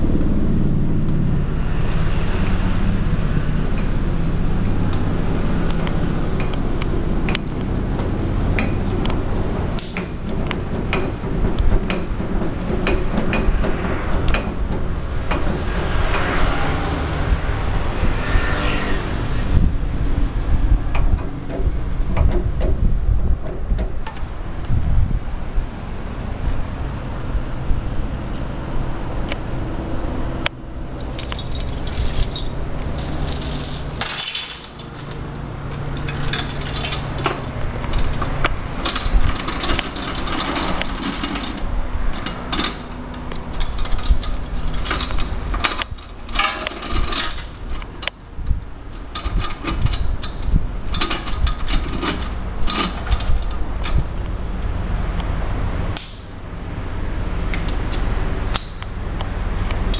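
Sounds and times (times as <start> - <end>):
steady low hum: 0.0 - 59.9
metal tools and chains clinking: 31.0 - 47.8.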